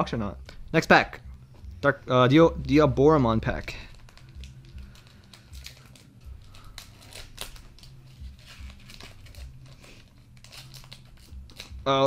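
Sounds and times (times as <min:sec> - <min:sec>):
foil pack tearing and crinkling: 0:03.7 - 0:12.0.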